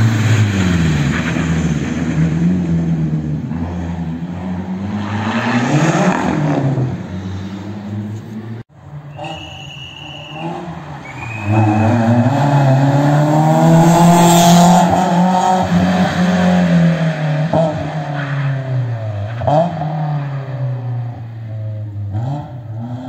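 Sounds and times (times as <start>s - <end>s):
rally car engine revving: 0.0s - 23.0s.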